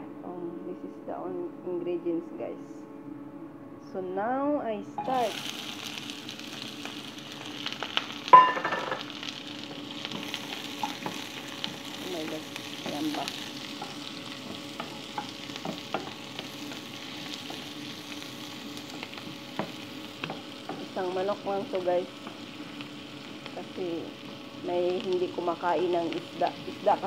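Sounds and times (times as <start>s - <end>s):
onions sizzling in a pan: 4.9s - 27.0s
loud ringing clank: 8.3s - 9.0s.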